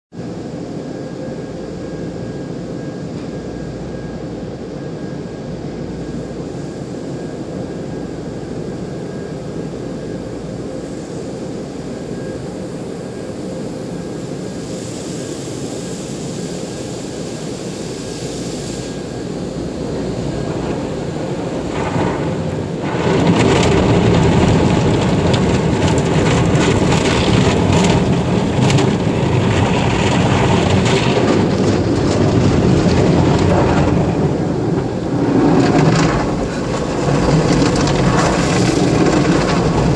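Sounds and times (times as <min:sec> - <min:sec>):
faint hum: 0:00.2 - 0:39.9
hissing foam spray: 0:14.5 - 0:21.1.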